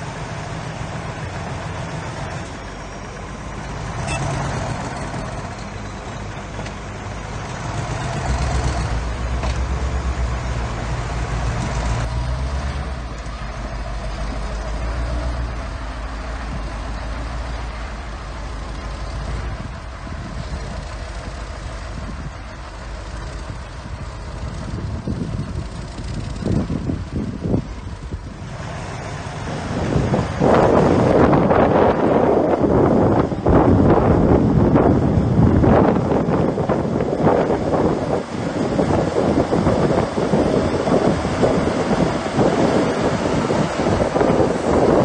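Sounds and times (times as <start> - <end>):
heavy diesel machinery engine: 0.0 - 45.0.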